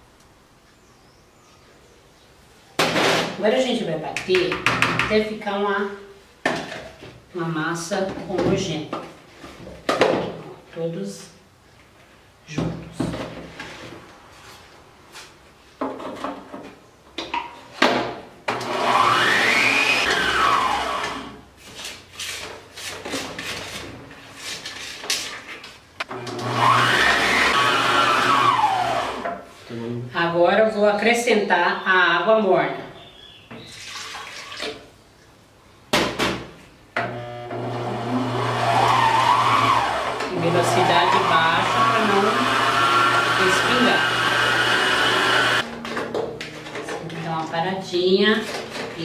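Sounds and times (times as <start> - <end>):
mixer motor whine: 18.5 - 21.4, 26.1 - 29.3, 37.0 - 45.7
water pouring into a bowl: 33.7 - 34.6.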